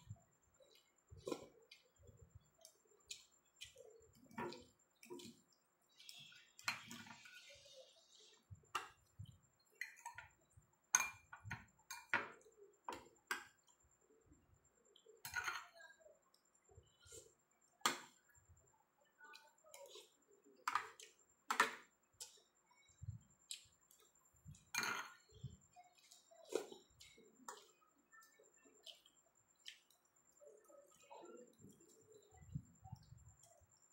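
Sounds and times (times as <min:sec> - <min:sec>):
cutlery clinking on a plate: 0:15.2 - 0:15.8, 0:24.7 - 0:25.3.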